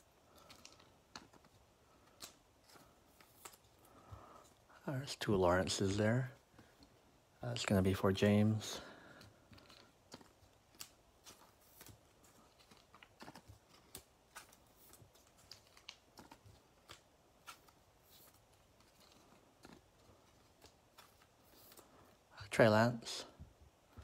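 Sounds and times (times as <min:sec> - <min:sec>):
trading cards clicking and rustling: 0:00.1 - 0:04.6, 0:07.6 - 0:21.9.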